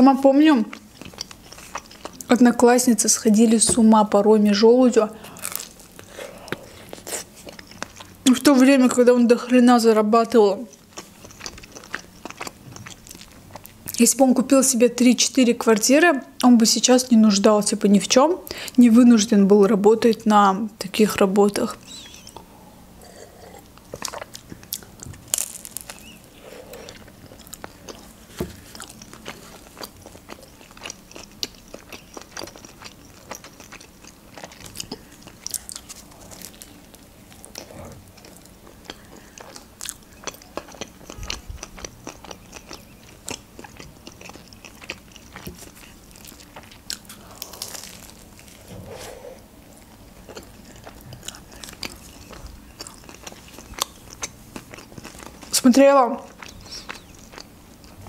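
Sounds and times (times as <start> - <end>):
chewing with crunches: 0.5 - 2.6, 5.2 - 9.0, 10.6 - 14.0, 21.5 - 58.0.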